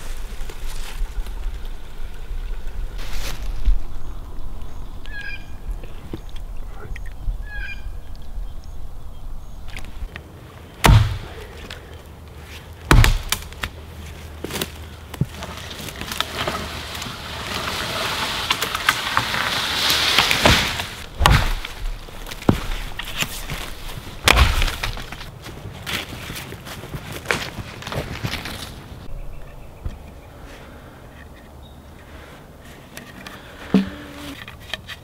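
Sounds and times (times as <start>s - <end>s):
rustling: 11.5s - 29.1s
hatchet striking wood: 12.9s - 13.4s.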